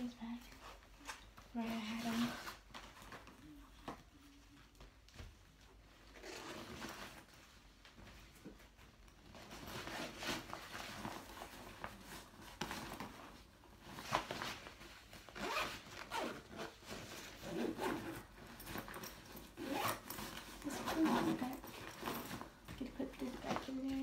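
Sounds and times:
rustling of packing: 0.0s - 24.0s
backpack zipper pulled: 6.1s - 7.0s, 15.4s - 22.4s.

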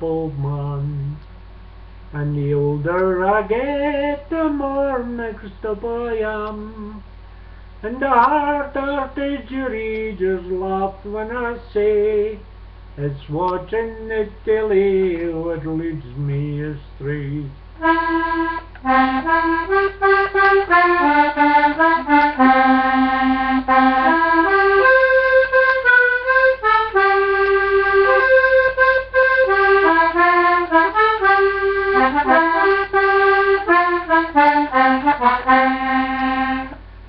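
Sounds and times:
button accordion playing a tune: 17.8s - 36.8s.

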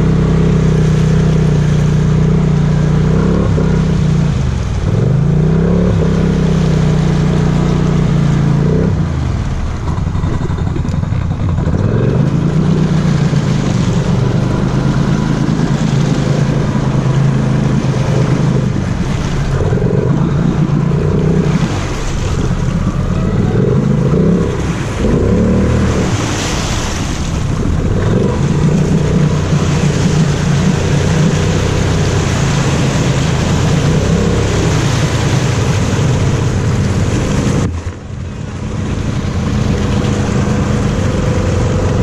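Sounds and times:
atv engine revving: 0.0s - 42.0s
tyres churning mud and water: 0.0s - 42.0s.

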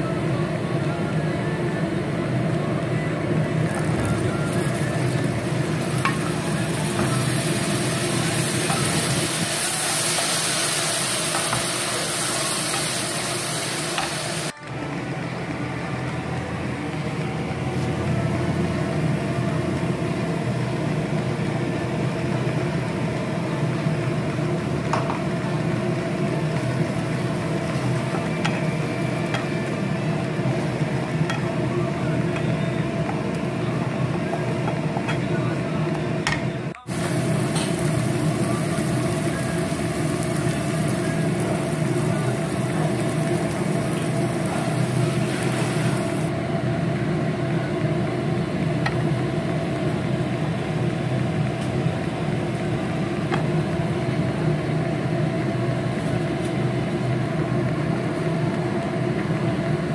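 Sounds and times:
food sizzling in hot oil: 3.6s - 14.5s, 36.9s - 46.3s.

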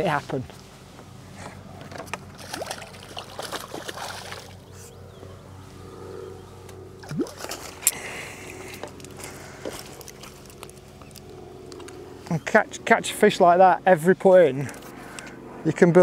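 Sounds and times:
fish splashing at the surface: 2.4s - 4.7s, 7.0s - 7.8s.

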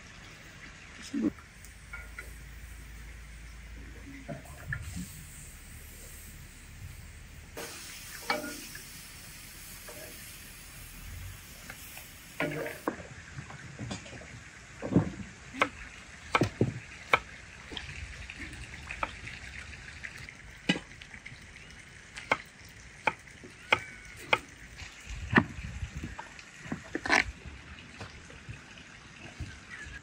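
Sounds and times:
faint steady hiss: 1.1s - 12.9s.

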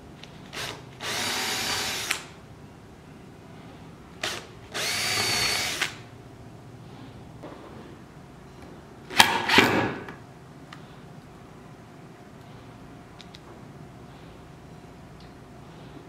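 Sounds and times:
cordless drill boring into wood: 0.6s - 2.3s, 4.2s - 6.0s.

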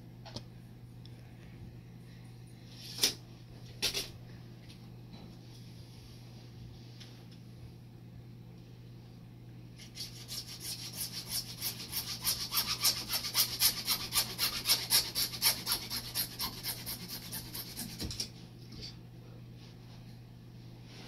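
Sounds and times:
hacksaw cutting plastic pipe: 9.8s - 18.3s.

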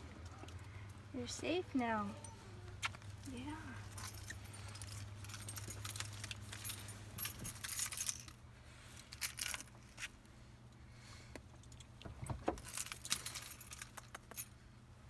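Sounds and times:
low steady hum: 0.0s - 15.0s
dog collar and tag jingling: 3.8s - 8.4s, 12.5s - 14.6s.

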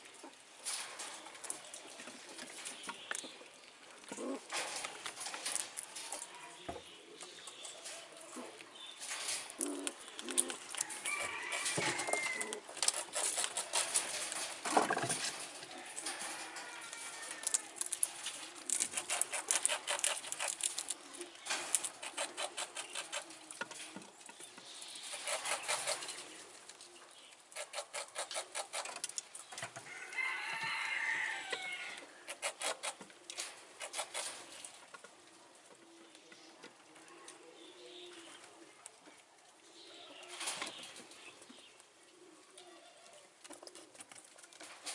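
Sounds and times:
chickens clucking: 0.0s - 44.9s
crowing calls: 9.5s - 12.7s, 29.8s - 32.6s.

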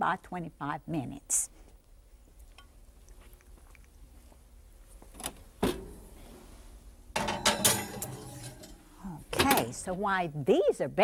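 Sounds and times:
oven door metal clunk: 7.2s - 8.6s.

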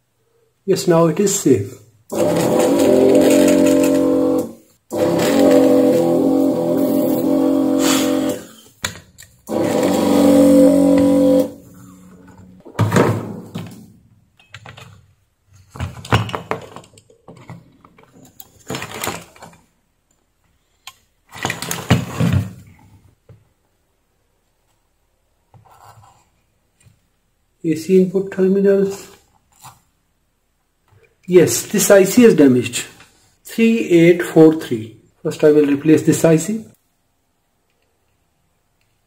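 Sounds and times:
desoldering pump humming: 2.1s - 8.6s, 9.4s - 12.6s.

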